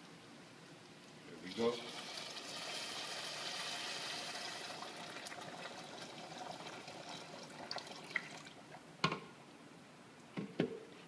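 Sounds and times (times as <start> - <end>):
liquid pouring into a pot: 1.4 - 8.8.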